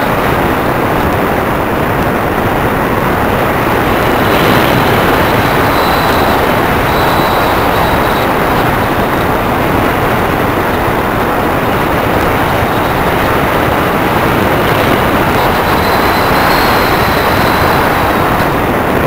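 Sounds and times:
faint high whine: 0.0 - 19.0
rush of airflow: 0.0 - 19.0
wind on microphone: 0.0 - 19.0.

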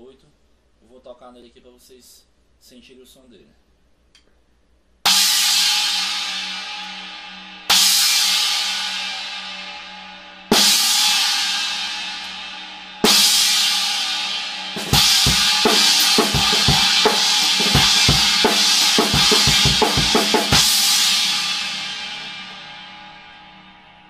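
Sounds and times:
drum kit beat: 10.5 - 12.3, 13.0 - 22.8.

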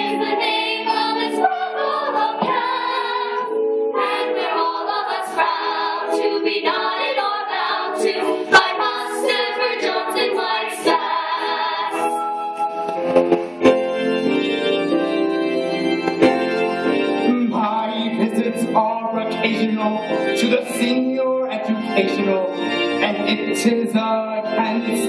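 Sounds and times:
women singing in chorus: 0.0 - 12.4.

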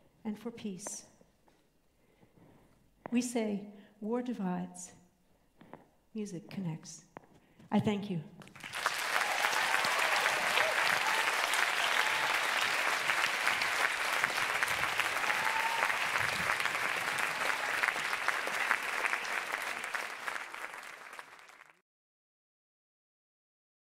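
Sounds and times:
audience applauding: 8.5 - 21.8.

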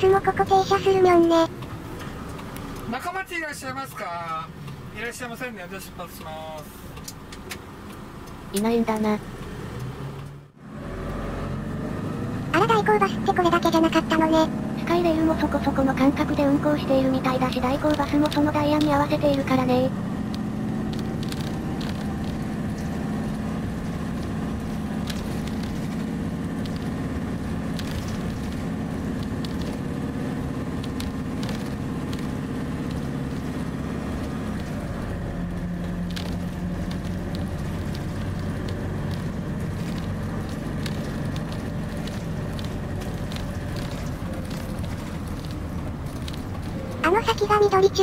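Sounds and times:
bus engine drone: 0.0 - 48.0
road rumble: 0.0 - 48.0
small rattles and clicks: 20.2 - 30.1, 30.7 - 47.6.

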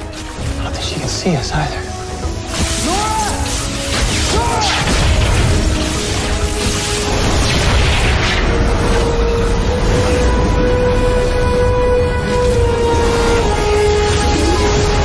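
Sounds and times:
dramatic score music: 0.0 - 15.0
crackling rumbling lightning effect: 3.6 - 15.0.

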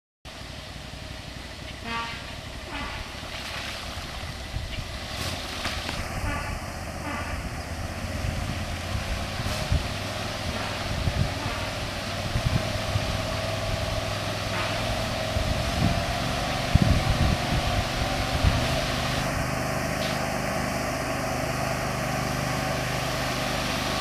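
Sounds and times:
vehicle engine droning: 0.3 - 24.0
distant trombone blasts: 1.8 - 3.3, 6.2 - 7.6, 9.3 - 16.3.

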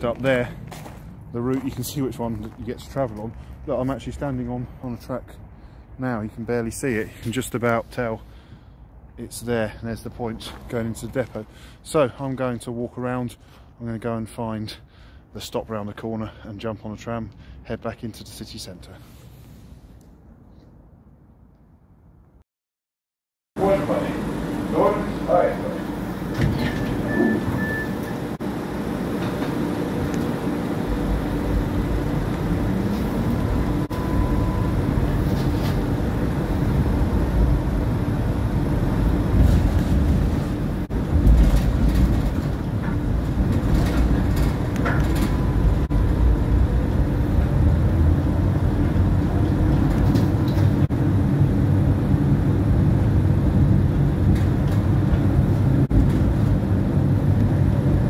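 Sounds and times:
tram wheels rumbling: 23.6 - 58.0.

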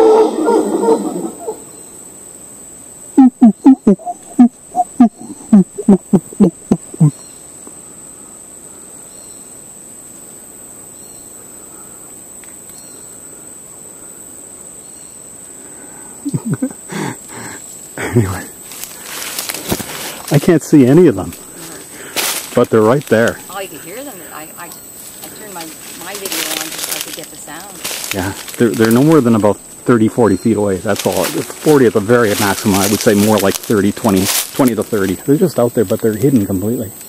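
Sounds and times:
deep grunting calls: 0.0 - 1.7, 3.2 - 7.2, 15.8 - 24.6
monkeys howling: 0.0 - 1.7, 3.2 - 7.2
insect buzz: 0.0 - 37.0.

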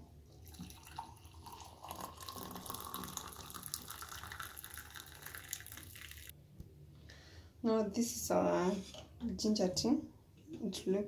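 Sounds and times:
tea pouring into a mug: 0.3 - 6.3.

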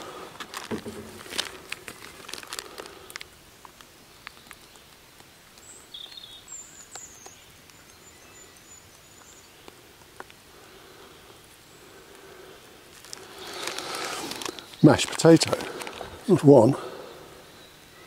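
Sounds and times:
rustling and clicks: 0.0 - 5.7, 12.9 - 16.3
birds chirping: 2.4 - 18.0.

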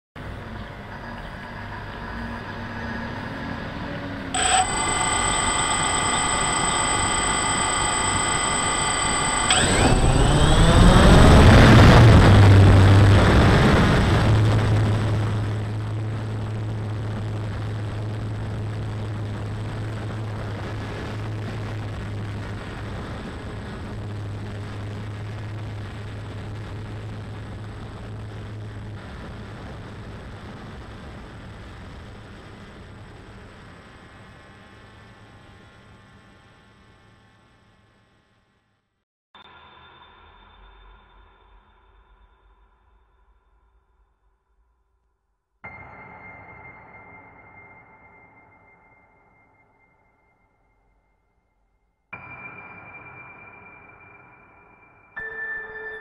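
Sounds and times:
drone motors whining: 4.4 - 13.5
drone propellers rushing: 4.4 - 16.6.

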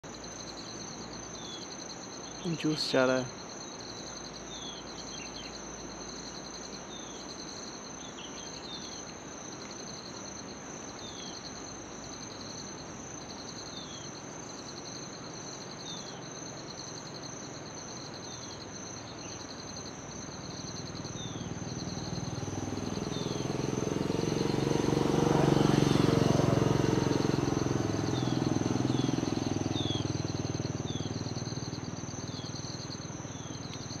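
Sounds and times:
insects trilling: 0.0 - 34.0
motor vehicle passing: 20.4 - 34.0.

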